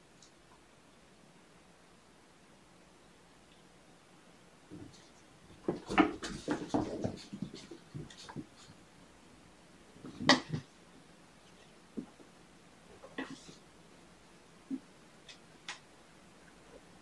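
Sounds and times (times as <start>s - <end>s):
kittens scuffling on carpet: 4.7s - 8.9s.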